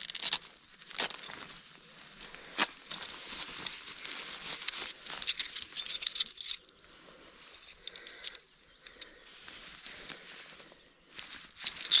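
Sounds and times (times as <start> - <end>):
fabric sack rustling: 0.0 - 5.7
metal tent pegs clinking: 4.6 - 6.7, 11.5 - 12.0.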